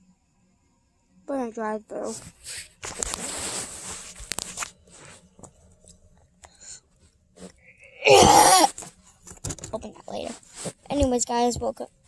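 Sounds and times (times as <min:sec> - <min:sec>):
girl's harsh vocal noise: 0:07.9 - 0:08.8
phone handling rustling and bumping: 0:09.2 - 0:09.9.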